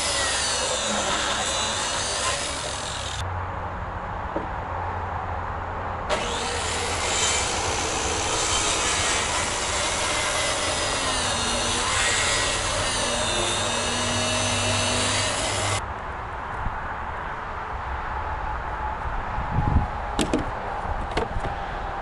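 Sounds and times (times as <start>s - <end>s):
power tool cutting wood: 0.0s - 3.2s, 6.1s - 15.8s.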